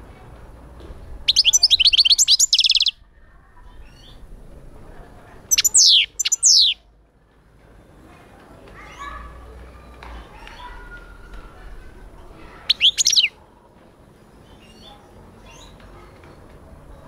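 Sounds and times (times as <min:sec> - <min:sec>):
goldfinch singing: 0:01.3 - 0:02.9, 0:05.5 - 0:06.8, 0:12.7 - 0:13.3.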